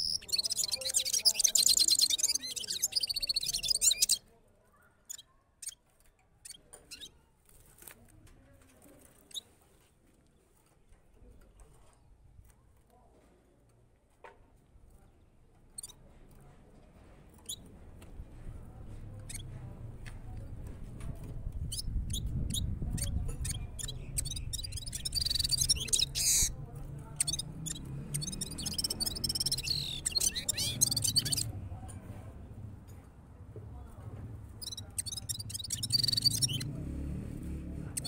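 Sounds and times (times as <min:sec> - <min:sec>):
finch chirping and twittering: 0:00.0 - 0:04.2, 0:19.2 - 0:19.6, 0:21.5 - 0:31.6, 0:34.5 - 0:36.8.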